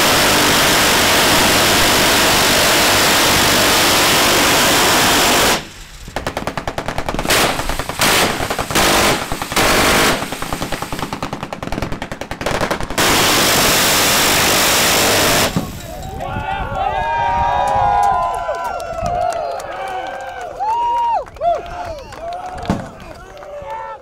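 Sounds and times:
rapid machine-gun shots: 0.0s - 15.8s
miniguns firing long bursts: 0.0s - 16.0s.

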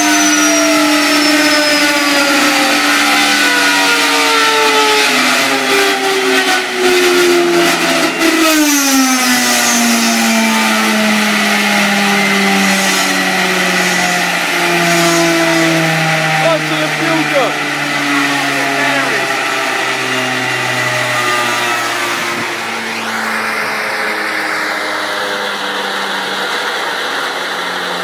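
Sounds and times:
jet engine whine: 0.0s - 28.0s.

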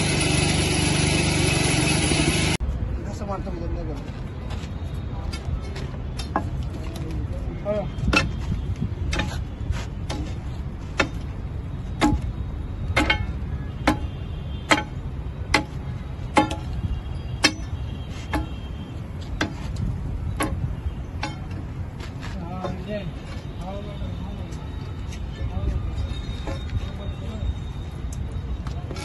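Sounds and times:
steel bar knocking on metal: 13.0s - 14.1s, 14.7s - 16.8s, 20.4s - 21.6s.

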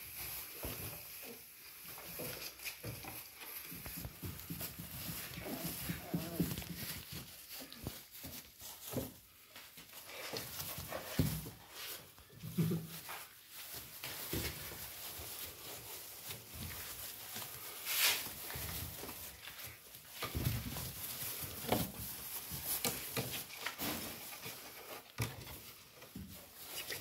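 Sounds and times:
paper strips rustling: 0.0s - 27.0s
soft puppy noises: 0.1s - 17.8s.

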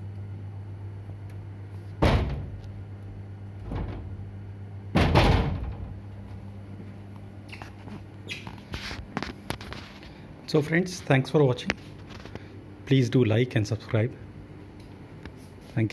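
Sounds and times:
steady low hum: 0.0s - 15.9s
heavy thumps: 2.0s - 2.6s, 3.6s - 4.2s.

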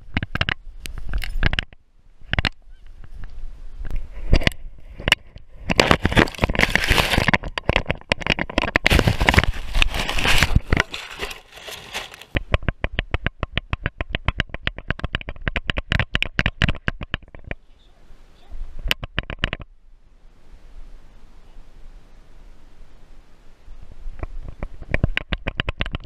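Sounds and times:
dry grass crackling and rustling: 5.6s - 12.4s.

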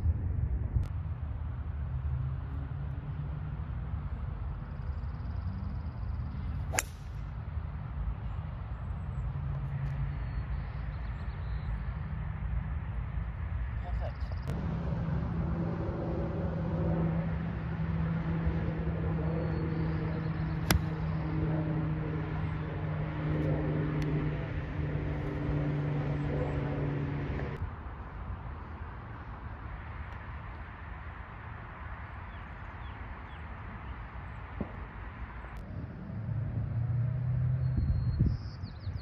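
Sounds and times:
outdoor background: 0.0s - 39.0s
golf club striking ball: 6.7s - 7.2s, 20.6s - 21.0s
engine drone: 14.4s - 27.7s.

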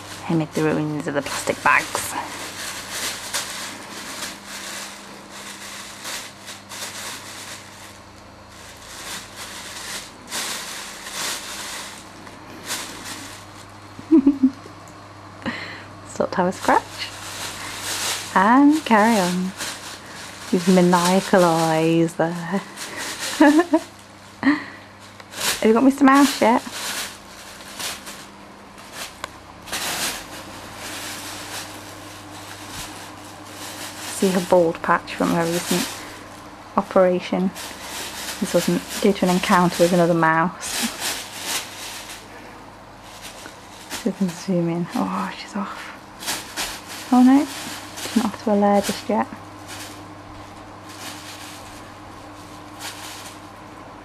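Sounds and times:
plastic bag crinkling: 0.0s - 14.5s, 16.4s - 54.0s.

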